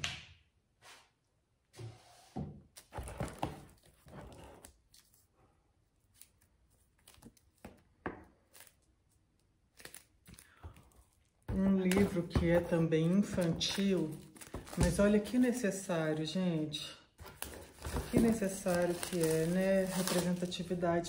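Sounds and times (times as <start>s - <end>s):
packaging rustling and crinkling: 6.0s - 15.8s, 17.2s - 21.0s
books thudding on surface: 17.8s - 18.5s.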